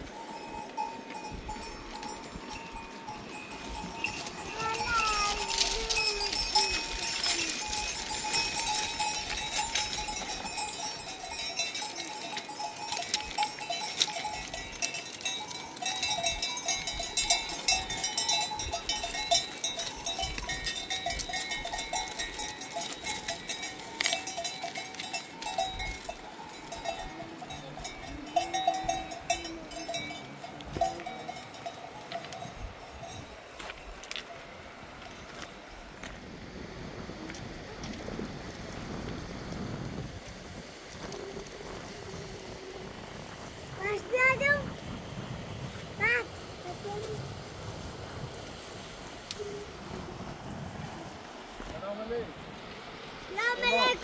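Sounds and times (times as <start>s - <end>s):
livestock bells clinking: 0.0s - 35.4s, 40.5s - 44.7s, 52.9s - 54.0s.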